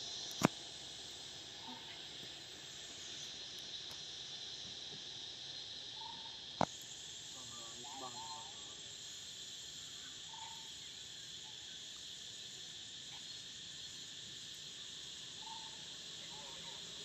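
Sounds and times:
insect chorus drone: 0.0s - 17.0s.

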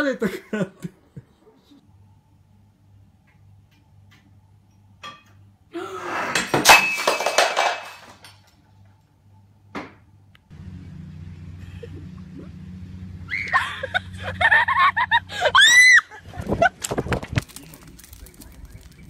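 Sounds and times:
ceramic bowl breaking: 6.4s - 8.3s.

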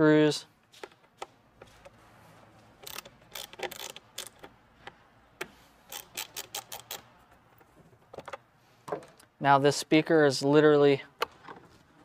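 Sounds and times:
screwdriver turning screws clicking: 2.8s - 4.6s, 5.4s - 7.1s.

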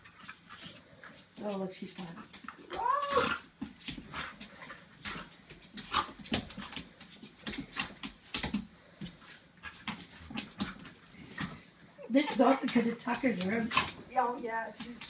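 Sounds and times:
dogs scuffling: 0.0s - 15.0s
dog whining: 2.6s - 3.5s.

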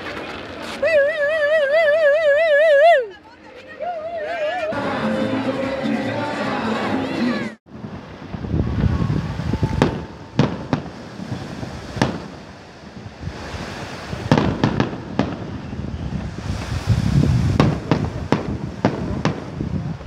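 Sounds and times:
fireworks bursting with sharp bangs: 7.7s - 20.0s.

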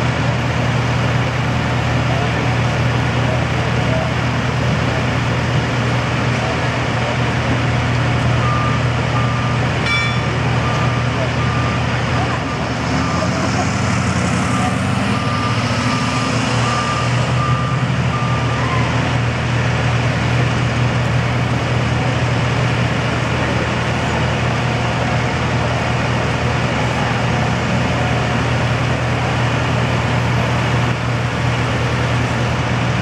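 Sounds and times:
vehicle engines idling: 0.0s - 33.0s
reversing beeper: 8.3s - 19.2s.

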